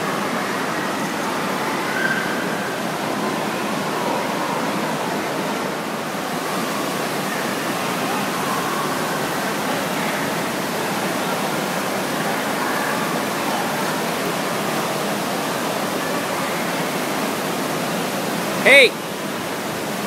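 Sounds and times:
faint distant voices: 0:00.0 - 0:20.0
water rushing and splashing: 0:00.0 - 0:20.0.

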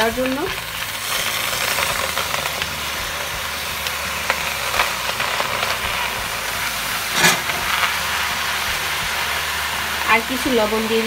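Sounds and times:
spinach sizzling in a hot pan: 0:00.0 - 0:11.0
colander knocking against a pan: 0:07.1 - 0:07.8.

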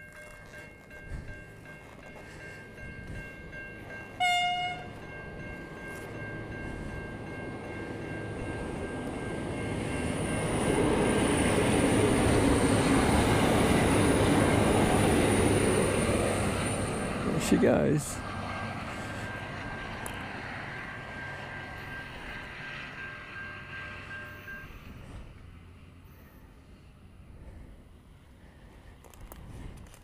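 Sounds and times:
railcar passing close: 0:00.0 - 0:30.0
railcar horn blast: 0:04.2 - 0:05.0.

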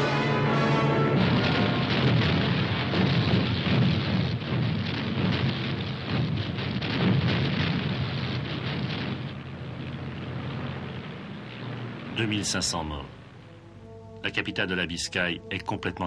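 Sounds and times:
bombs bursting: 0:00.0 - 0:12.2.

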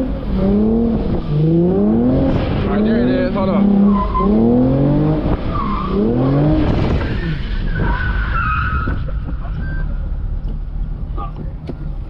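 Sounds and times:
car engine revving: 0:00.0 - 0:07.9.

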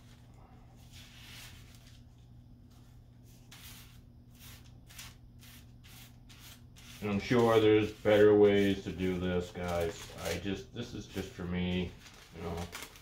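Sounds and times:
low steady hum: 0:00.0 - 0:13.0
spoon scraping dry powder: 0:03.5 - 0:09.0.

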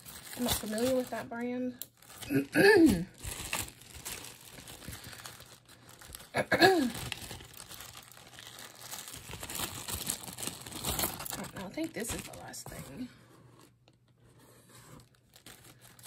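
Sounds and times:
plastic zip-top bag crinkling: 0:00.0 - 0:14.1, 0:14.8 - 0:16.0.

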